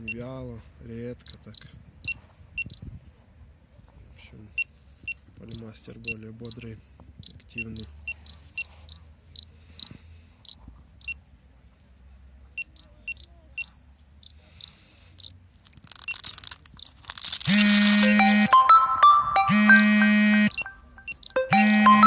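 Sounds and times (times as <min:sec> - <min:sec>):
radiation detectors chirping high beeps: 0:16.0 - 0:22.0
loud music: 0:18.0 - 0:20.8, 0:21.4 - 0:22.0.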